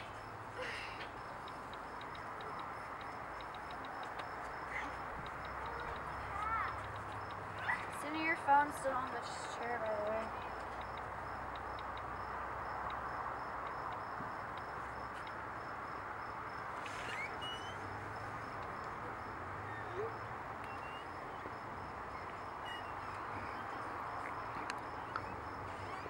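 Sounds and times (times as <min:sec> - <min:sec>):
small clicks: 0:01.0 - 0:08.2
faint short chirps: 0:16.9 - 0:17.9.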